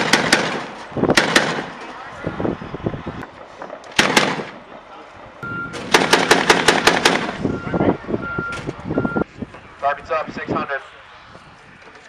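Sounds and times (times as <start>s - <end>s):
sharp bangs: 0.0s - 2.0s, 3.3s - 7.7s.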